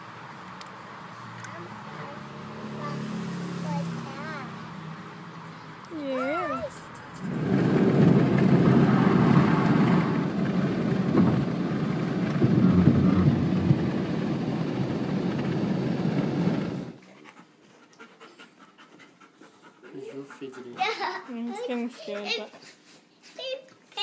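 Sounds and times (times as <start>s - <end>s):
road and wind noise in car: 0.0s - 17.0s.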